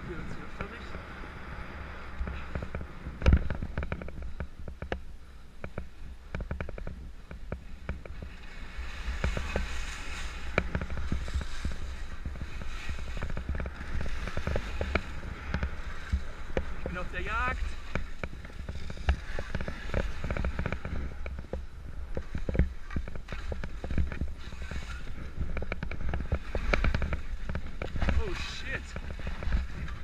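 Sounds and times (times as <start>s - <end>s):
wind on microphone: 0.0s - 30.0s
skis scraping clicks and cracks: 6.4s - 30.0s.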